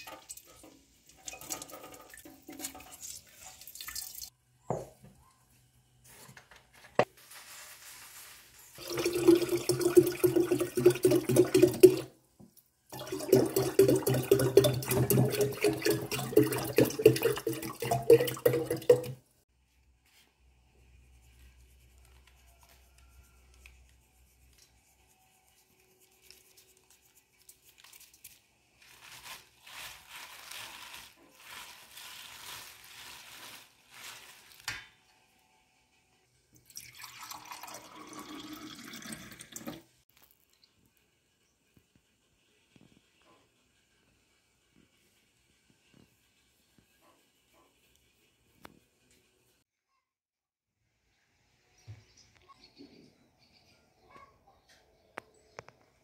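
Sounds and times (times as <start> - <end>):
tap water filling a pitcher: 0.0 - 4.3, 8.8 - 12.1, 12.9 - 19.2, 36.6 - 39.9
juice pouring into a glass: 8.8 - 12.1, 12.9 - 19.2, 36.6 - 39.8.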